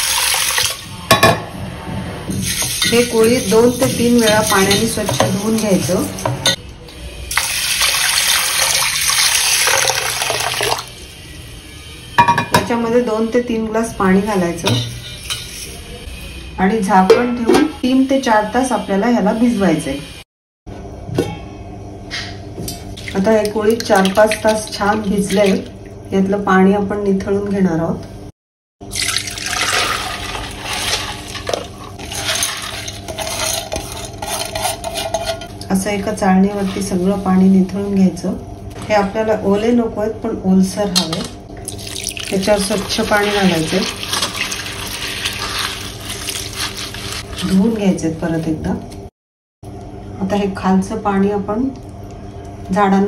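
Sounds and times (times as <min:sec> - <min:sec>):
water pouring into metal bowl: 0:07.3 - 0:10.9, 0:28.8 - 0:33.0, 0:41.6 - 0:47.5.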